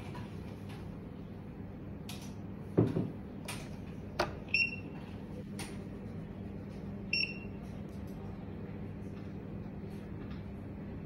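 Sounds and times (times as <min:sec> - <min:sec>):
short electronic beeps: 0:07.1 - 0:07.6.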